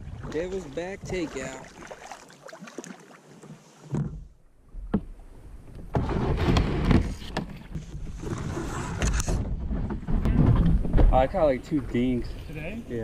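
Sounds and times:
kayak hull scraping over gravel: 6.0 - 10.1.

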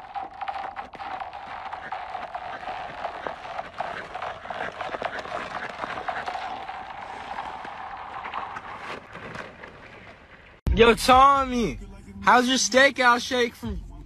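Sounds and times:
ice skates scraping on ice: 0.0 - 10.6.

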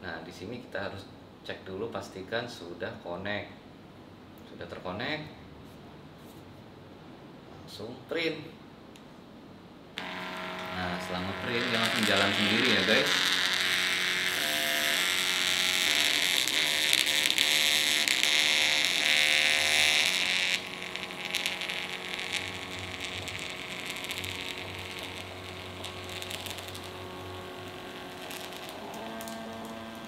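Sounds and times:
printer motor whirring: 10.0 - 30.0.

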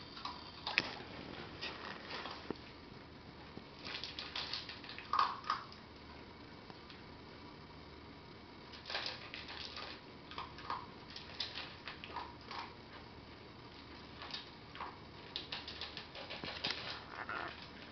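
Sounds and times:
dog crunching kibble in metal bowl: 0.2 - 2.7, 3.8 - 5.8, 8.7 - 13.0, 13.8 - 17.9.

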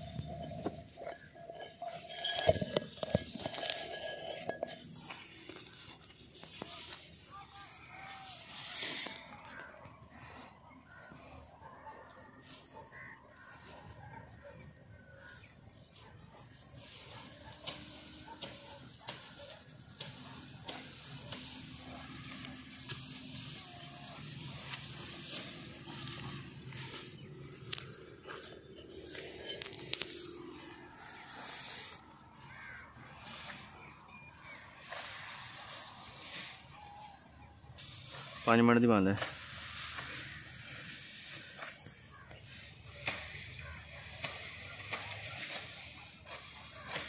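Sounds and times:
footsteps crunching on straw: 0.0 - 10.5, 20.1 - 47.0
dry grass crackling: 0.0 - 11.3, 15.2 - 47.0.

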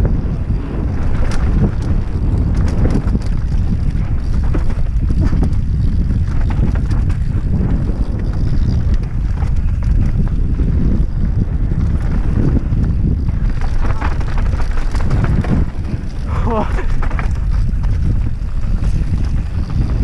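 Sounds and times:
bike clicks and knocks: 0.0 - 20.0
wind buffeting microphone: 0.0 - 20.0
tyres crunching over dirt and stones: 11.5 - 20.0.

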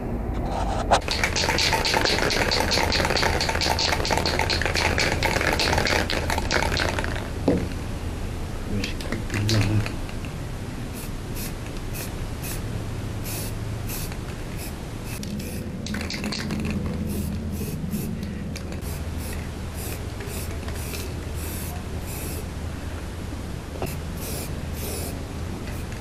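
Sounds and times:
spray can hissing bursts: 1.0 - 7.2, 11.0 - 18.2, 18.8 - 22.5, 23.9 - 25.9.

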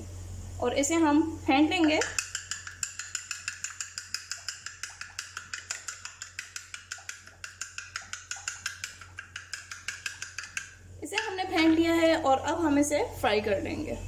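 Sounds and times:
metal utensil clicking on plate: 1.8 - 11.4.

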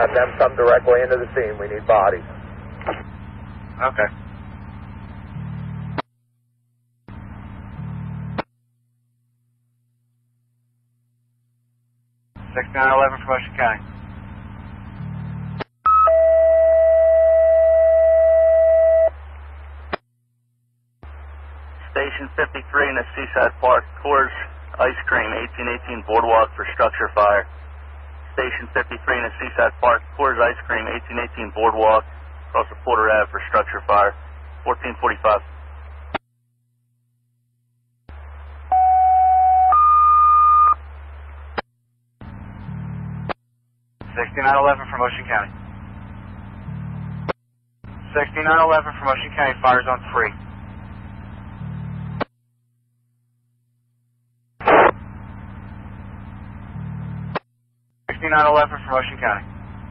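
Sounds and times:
radio hum: 0.0 - 6.1, 12.4 - 20.0, 21.0 - 36.2, 38.1 - 39.1, 40.6 - 43.4, 44.0 - 52.3, 54.6 - 57.4, 58.1 - 59.9
two-tone radio alert tones: 15.9 - 19.1, 38.7 - 40.8.

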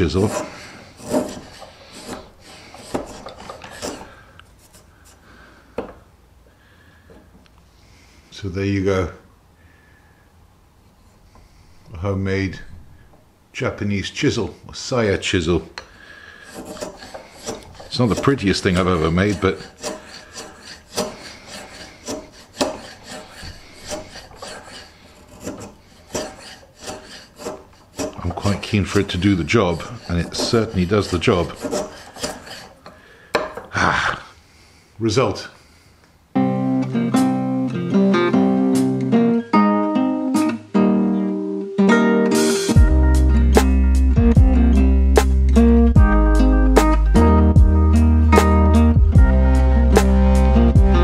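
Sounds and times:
chisel scraping wood: 0.0 - 5.3, 16.2 - 33.7
faint taps: 5.8 - 6.0.

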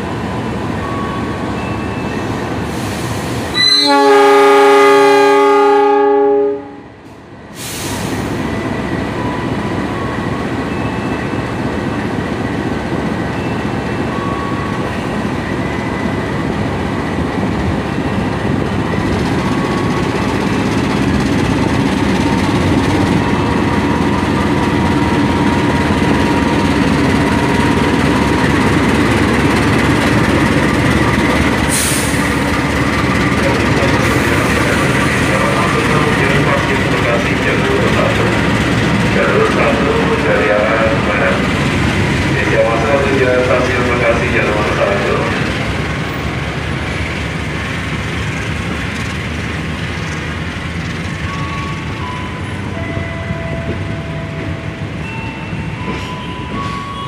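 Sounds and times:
train noise: 0.0 - 57.0
locomotive horn blast: 3.5 - 7.0.

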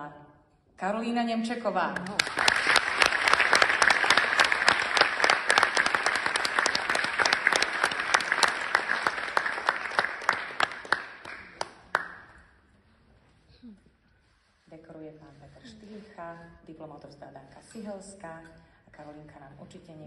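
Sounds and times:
audience applauding: 2.0 - 12.4.

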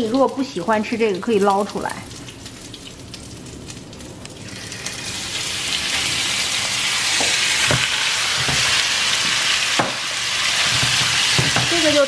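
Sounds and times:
meat sizzling in a frying pan: 0.0 - 12.0.

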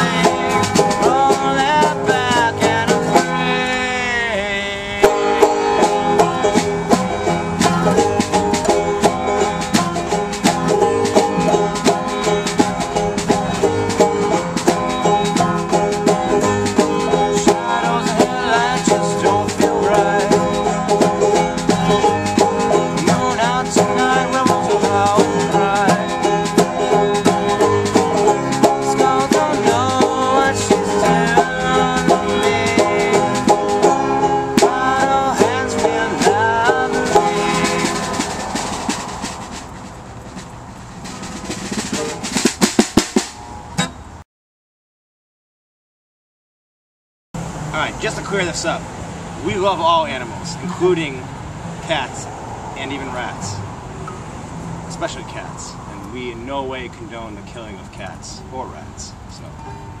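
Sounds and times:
hand drum beat: 0.0 - 3.6, 5.0 - 43.4
banjo picking: 0.0 - 44.1, 47.6 - 54.3, 54.9 - 58.7
acoustic guitar: 0.0 - 44.2, 47.4 - 60.0.

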